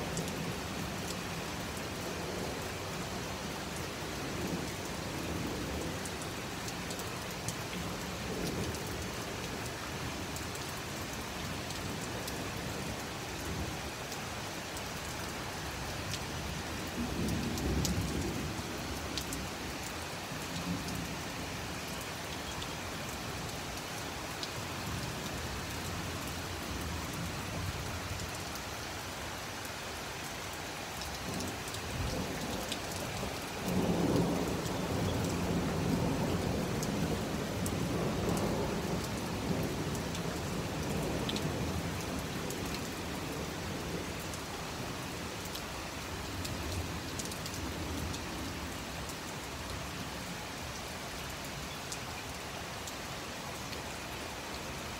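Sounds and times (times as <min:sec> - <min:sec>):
heavy rain falling: 0:00.0 - 0:54.9
low roll of thunder: 0:33.1 - 0:39.7.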